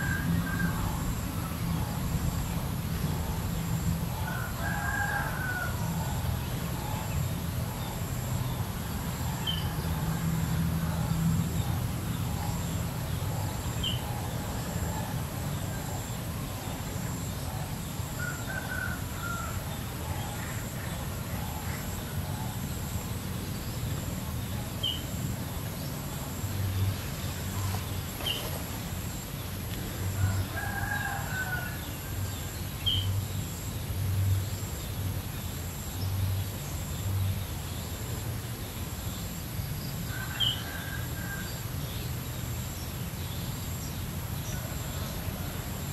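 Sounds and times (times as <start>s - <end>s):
steady hiss and low rumble: 0.0s - 45.9s
distant rooster crowing: 4.1s - 6.3s, 18.2s - 20.5s, 30.1s - 32.4s, 40.1s - 41.8s.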